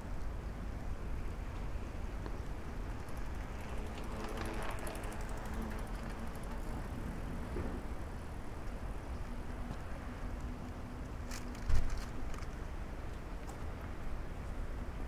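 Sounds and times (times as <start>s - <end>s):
faint engine hum: 0.0s - 15.0s
traffic rumble: 0.1s - 15.0s
light fast ticking: 2.5s - 6.8s.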